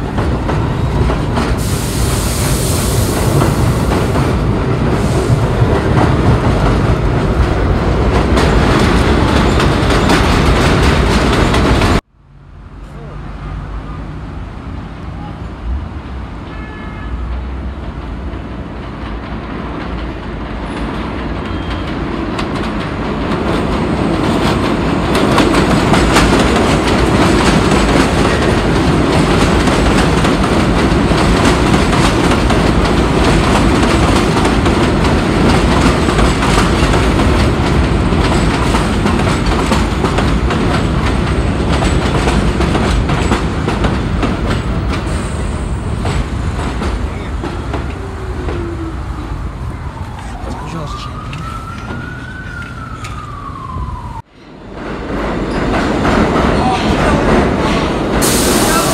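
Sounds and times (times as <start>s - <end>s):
subway train passing: 0.0s - 58.9s
wheels clacking over rail joints: 3.2s - 12.0s, 18.1s - 48.8s, 54.6s - 58.4s.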